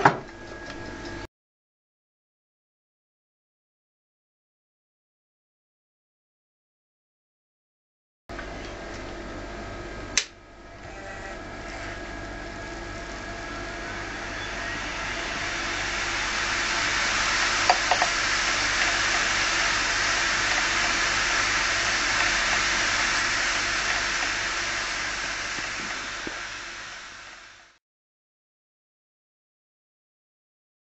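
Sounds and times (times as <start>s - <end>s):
hard drive spinning hiss: 10.7s - 27.8s.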